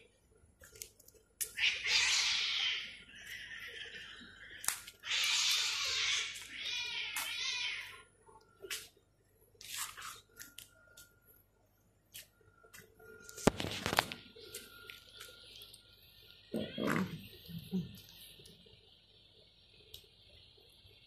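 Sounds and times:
cat wavering cry: 1.5 - 8.0.

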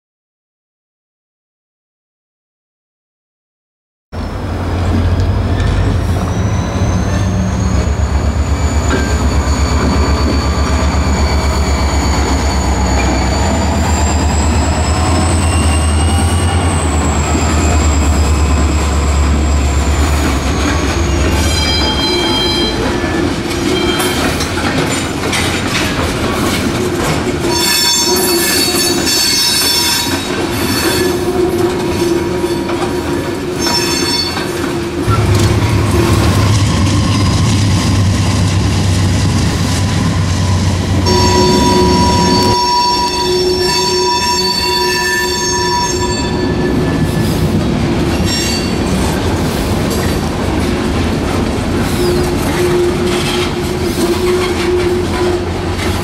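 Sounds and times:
train wheels squealing: 4.2 - 25.4, 27.4 - 50.2, 51.8 - 56.0
diesel locomotive rumble: 4.2 - 27.6, 34.5 - 44.0, 46.3 - 56.0
wheels clattering on rails: 4.3 - 43.1, 46.0 - 56.0.

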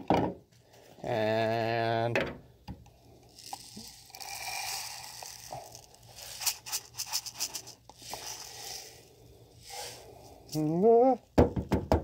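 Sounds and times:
powder pouring into plastic: 3.3 - 10.2.

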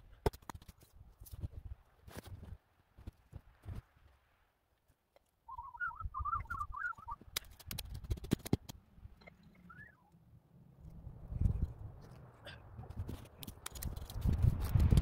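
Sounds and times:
bird chirping: 5.5 - 7.2, 9.4 - 10.2.

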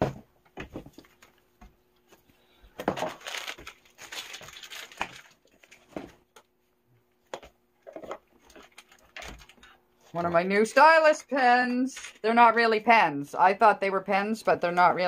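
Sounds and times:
faint steady hum: 0.0 - 15.0
paper packaging rustling: 2.8 - 6.2, 8.3 - 9.7.

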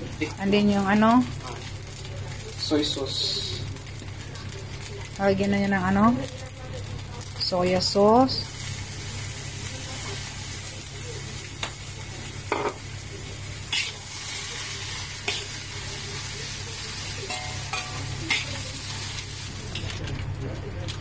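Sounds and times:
rice sizzling in a wok: 0.0 - 21.0
metal spatula scraping wok: 13.7 - 14.1.

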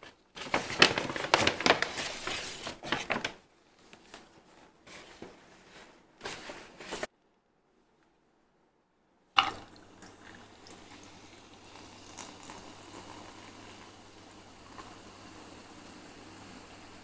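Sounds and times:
can opening pop: 9.4 - 9.6
drink fizzing as poured: 9.4 - 17.0.

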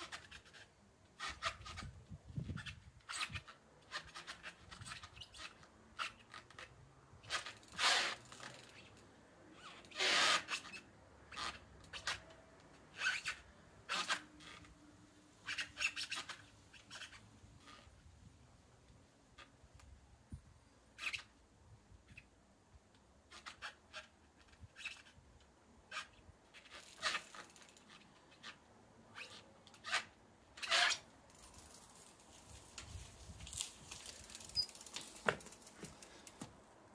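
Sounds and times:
faint rustling hiss: 0.0 - 36.9
bike knocking against wooden stand: 34.6 - 36.6.

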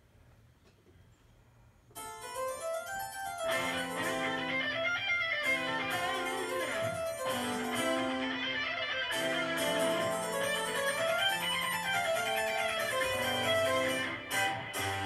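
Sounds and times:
harpsichord playing: 2.0 - 15.0
violin playing: 3.4 - 15.0.

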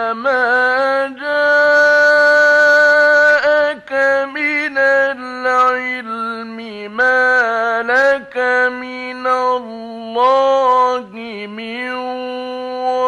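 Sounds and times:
man chanting melodically: 0.0 - 13.0.

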